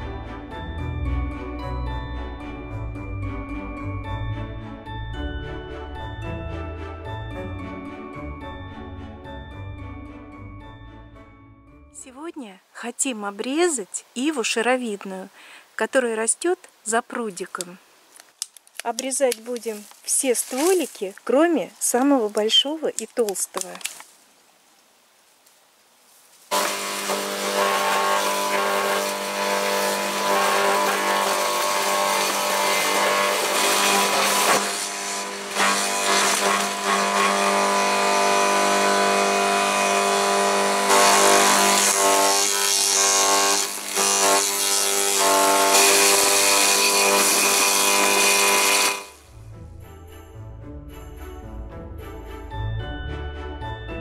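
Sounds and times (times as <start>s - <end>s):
garden shredder motor hum: 26.5s - 49.2s.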